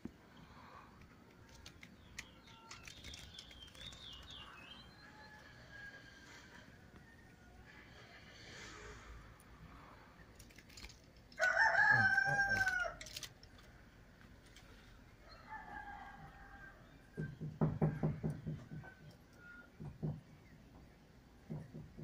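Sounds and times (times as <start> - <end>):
rooster crowing: 4.9 - 7.9, 11.4 - 13.1, 15.2 - 19.7.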